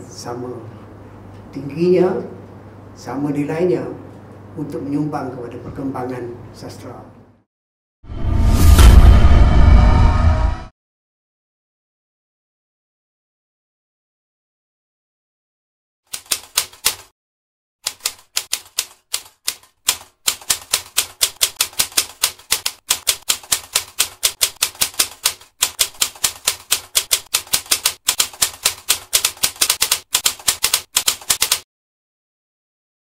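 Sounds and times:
typewriter keys clacking: 16.1 - 17.1, 17.8 - 31.6.

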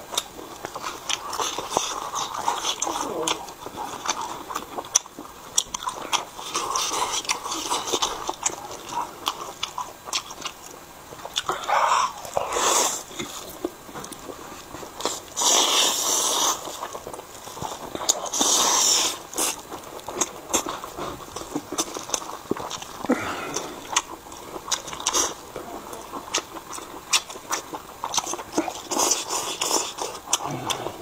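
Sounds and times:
wet chewing and lip smacks: 0.1 - 31.0
slurping noodles: 11.4 - 13.5, 14.6 - 16.9, 18.0 - 19.6.

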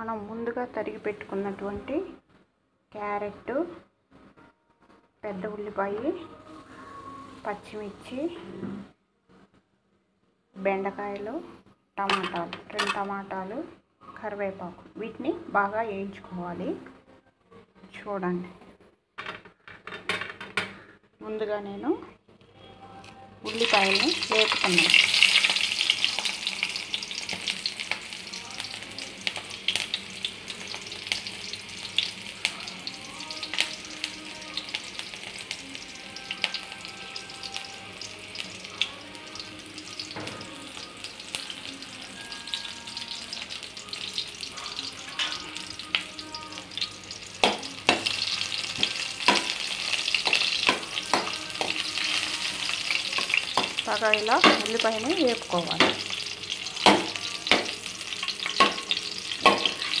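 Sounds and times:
onions sizzling in hot oil: 23.4 - 60.0
steel spoon knocking on pan: 54.4 - 54.7, 55.8 - 56.1, 56.8 - 57.8, 58.5 - 59.8.

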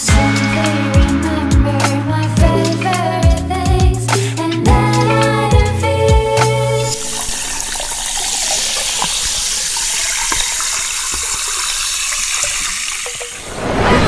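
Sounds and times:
liquid pouring into glass: 6.8 - 13.4.

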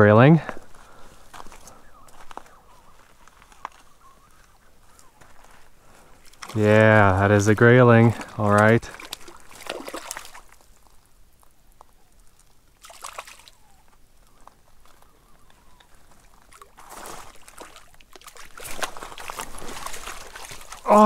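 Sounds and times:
fish splashing in water: 8.9 - 11.0, 12.2 - 13.8, 15.8 - 21.0.

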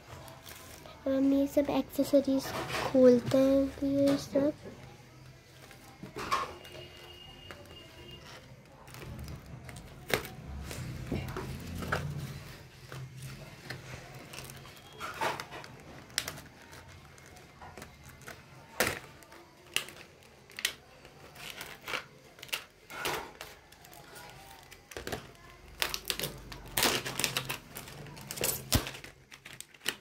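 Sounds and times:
plastic packaging clicks and crinkles: 0.0 - 30.0.

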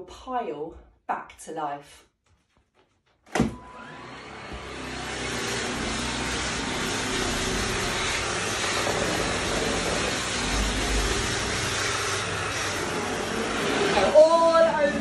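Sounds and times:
vacuum cleaner motor running: 3.4 - 15.0.

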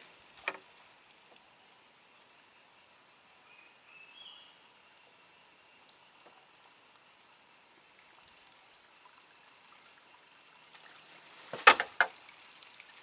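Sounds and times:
water splashes: 6.7 - 13.0.

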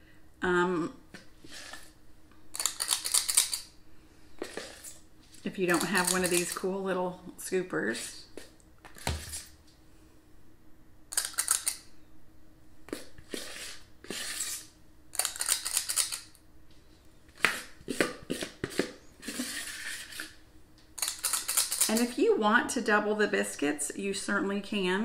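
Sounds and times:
metal scoop scraping dough: 4.4 - 6.7, 13.2 - 16.2, 17.4 - 20.4.

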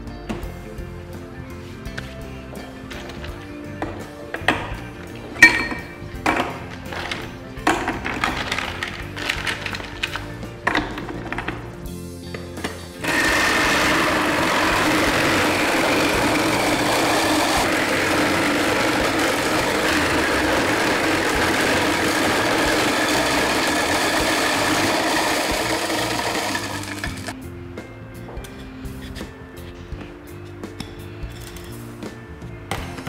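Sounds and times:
electric ice crusher shaving ice: 8.0 - 9.9, 13.0 - 27.4.

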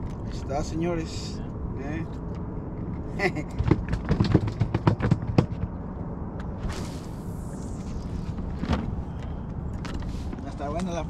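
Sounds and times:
fish knocking and slapping: 3.6 - 5.8
steady low rumble: 4.6 - 11.0.

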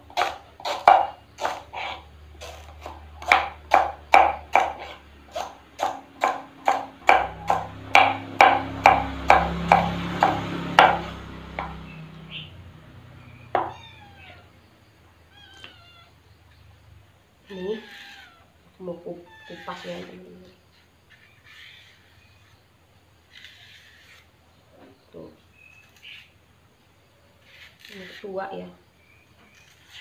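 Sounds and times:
knife chopping on wooden board: 0.1 - 1.8, 2.4 - 11.9
kitten meowing: 13.6 - 14.6, 15.3 - 16.1, 17.5 - 18.5, 19.1 - 20.2.

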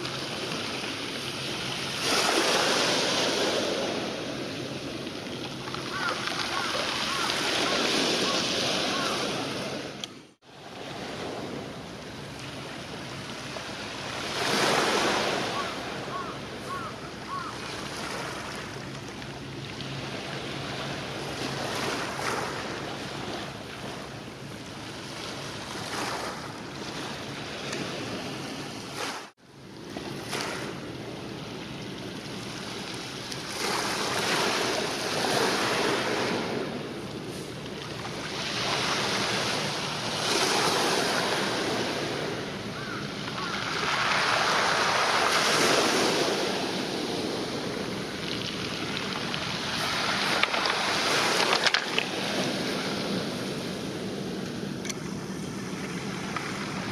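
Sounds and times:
small waves washing on shore: 0.0 - 56.9.

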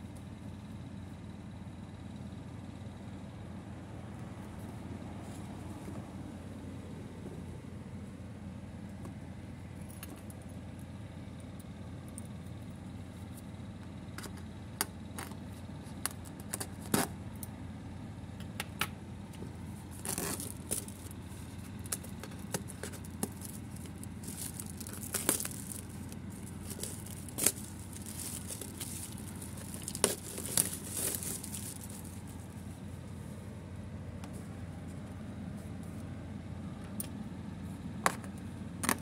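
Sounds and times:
plastic wrap crinkling and tearing: 21.8 - 32.2
cardboard box handling: 22.0 - 32.2.

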